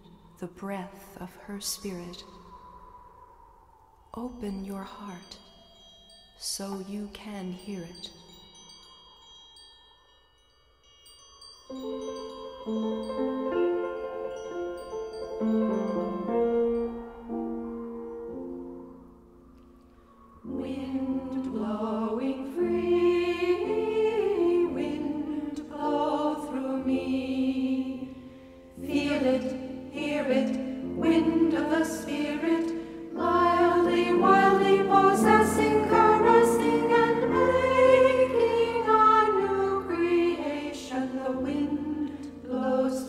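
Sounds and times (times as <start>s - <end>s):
choir singing: 20.1s - 43.0s.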